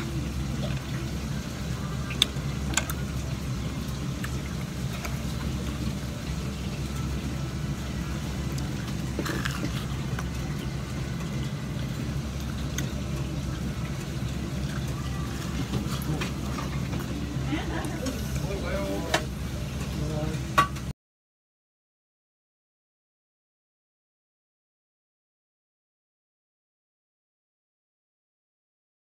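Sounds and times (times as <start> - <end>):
restaurant room noise: 0.0 - 20.9.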